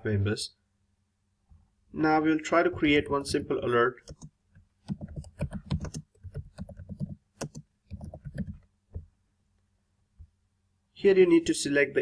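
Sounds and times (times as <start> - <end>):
computer keyboard typing: 2.7 - 9.1.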